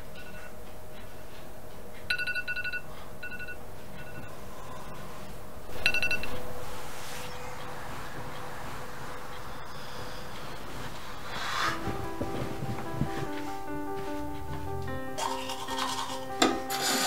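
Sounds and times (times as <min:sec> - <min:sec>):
faint steady hum: 0:00.0 - 0:17.0
electronic ringtone beeps: 0:02.1 - 0:05.0, 0:05.8 - 0:06.4.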